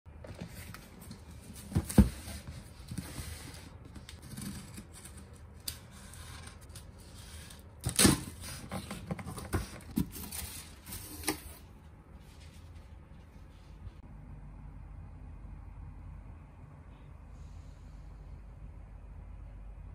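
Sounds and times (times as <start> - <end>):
cardboard flaps scraping and rustling: 0.2 - 5.1.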